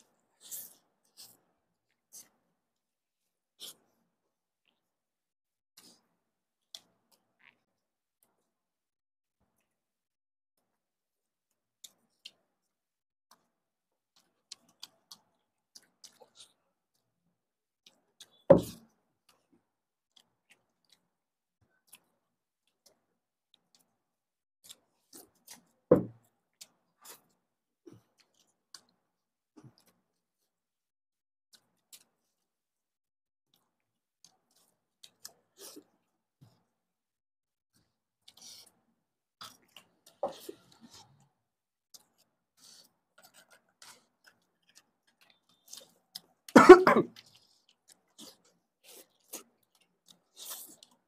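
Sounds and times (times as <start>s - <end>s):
faint clicks from eating: 5.8s - 8.4s, 11.5s - 12.7s, 13.3s - 17.1s, 17.8s - 24.0s, 24.6s - 30.1s, 31.5s - 32.5s, 39.4s - 41.3s, 41.9s - 46.5s, 47.1s - 51.0s
chewing smacks: 41.9s - 46.5s, 47.1s - 51.0s
loud cough: 46.6s - 47.1s.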